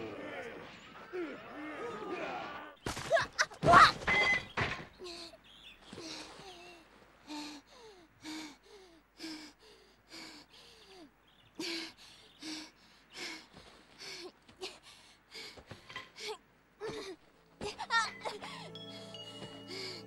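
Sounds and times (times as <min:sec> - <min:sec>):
person gasping breaths: 0:07.2 - 0:17.2, 0:18.3 - 0:20.0.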